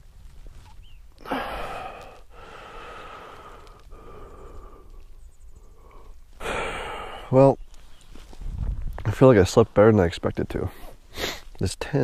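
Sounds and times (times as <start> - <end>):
person breathing heavily: 1.2 - 7.4.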